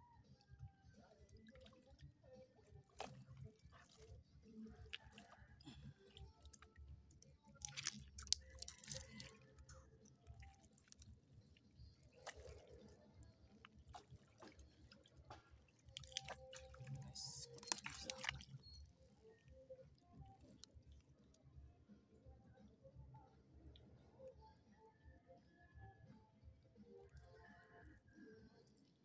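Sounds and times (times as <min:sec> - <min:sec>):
water and mud squelching: 0:01.1 - 0:21.3.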